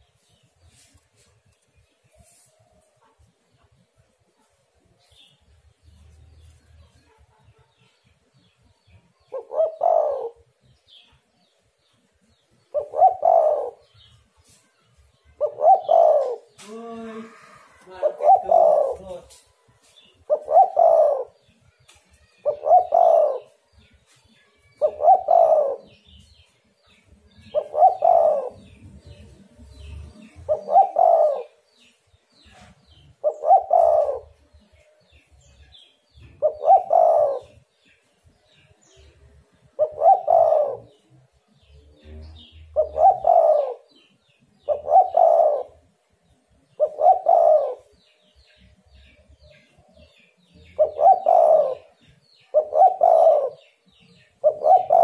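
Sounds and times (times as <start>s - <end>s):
dove cooing: 9.3s - 10.5s, 12.7s - 14.1s, 15.4s - 19.4s, 20.3s - 21.5s, 22.4s - 23.6s, 24.8s - 26.2s, 27.4s - 31.6s, 32.6s - 34.4s, 36.2s - 37.6s, 39.8s - 41.1s, 42.0s - 45.8s, 46.7s - 48.0s, 49.0s - 53.8s, 54.4s - 55.0s.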